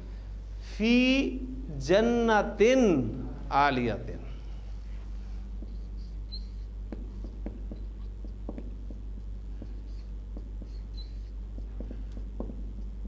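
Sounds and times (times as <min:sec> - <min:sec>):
steady low hum: 0:00.0 - 0:13.0
marker scratching on whiteboard: 0:05.1 - 0:13.0.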